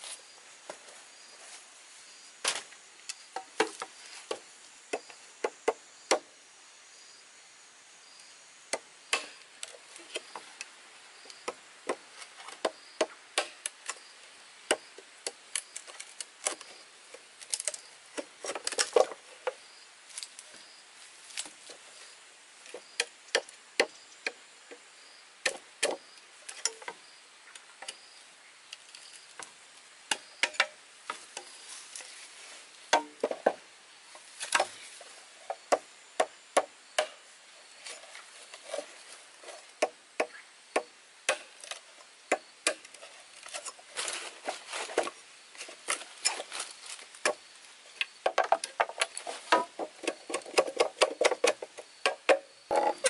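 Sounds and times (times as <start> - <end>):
machete knocking into bamboo: 2.4 - 2.7, 32.9 - 33.6, 35.7 - 37.2, 39.8 - 41.5.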